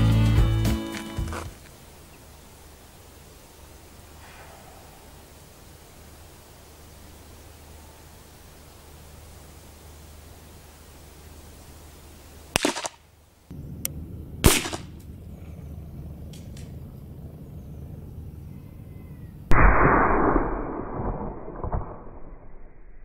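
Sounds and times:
muffled burst: 4.1 - 6.2, 19.5 - 22.1
rifle shots: 12.5 - 13.0, 14.4 - 14.9.

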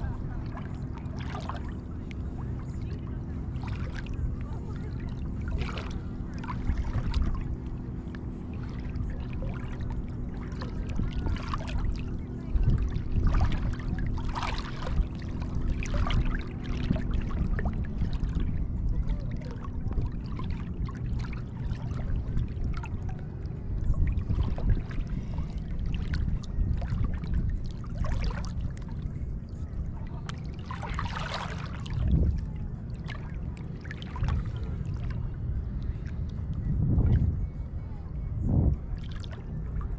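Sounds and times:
boat engine hum: 0.0 - 39.9
small waves lapping and splashing: 0.0 - 39.9
wind rumble on microphone: 0.0 - 39.9.

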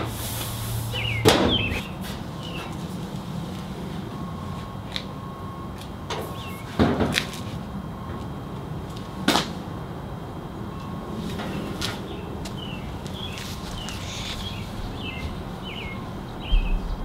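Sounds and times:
metal door clunks: 1.2 - 1.9.

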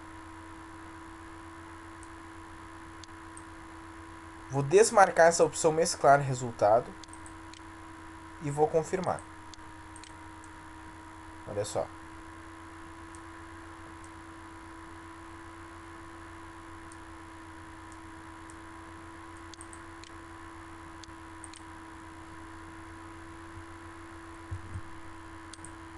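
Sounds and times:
electrical hum and hiss: 0.0 - 25.9
computer mouse clicks: 7.0 - 7.6, 9.1 - 10.6, 19.3 - 20.2, 21.0 - 21.7.

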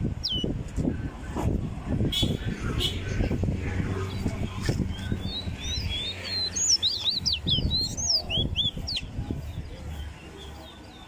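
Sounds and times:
songbird singing whistled notes: 0.2 - 0.5, 4.1 - 11.0.

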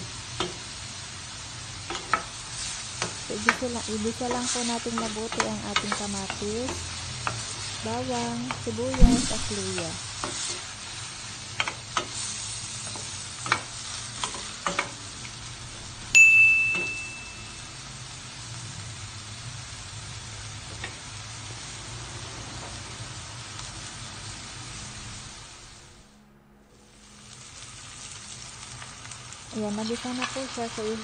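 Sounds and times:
vegetables sizzling in a pot: 0.0 - 26.1, 26.8 - 31.0
bell-like ding: 9.0 - 9.6, 16.2 - 17.8.

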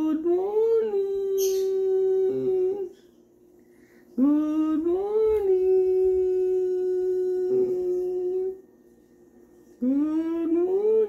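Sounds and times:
person singing a long note: 0.0 - 2.9, 4.2 - 8.6, 9.8 - 11.0.

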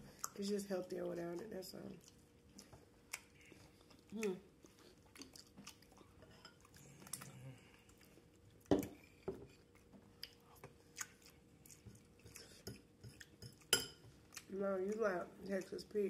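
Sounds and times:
quiet wet chewing: 0.0 - 16.0.

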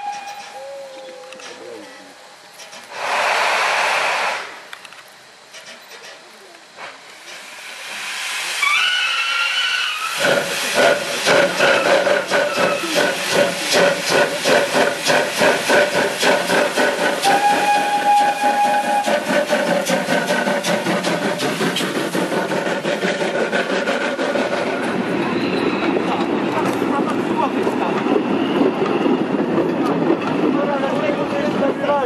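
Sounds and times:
steam whistle blast: 0.0 - 0.7, 8.6 - 10.4, 17.2 - 19.5
heavy steam hiss: 0.0 - 32.0
steam locomotive chuffing: 2.5 - 6.2, 6.8 - 32.0.

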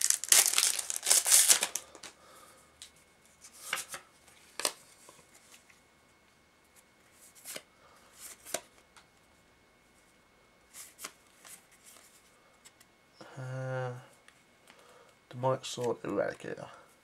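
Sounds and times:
wrapper crinkling: 0.0 - 2.1.

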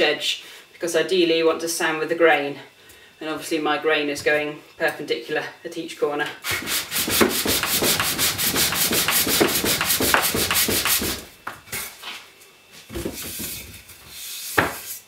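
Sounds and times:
hand sanding wood: 6.4 - 11.3.

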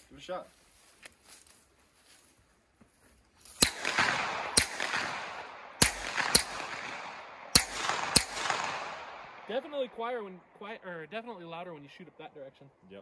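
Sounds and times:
suppressed pistol shots: 3.6 - 9.5
gunshot echo: 3.6 - 9.9.

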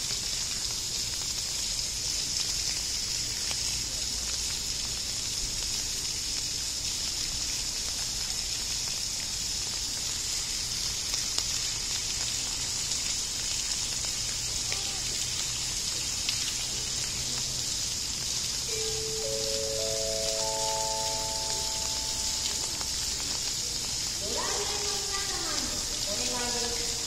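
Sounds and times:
rising four-note chime: 18.7 - 23.3.

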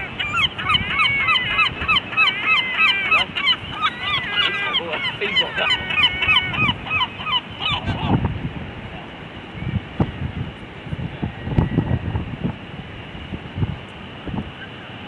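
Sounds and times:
gulls calling: 0.0 - 8.3.

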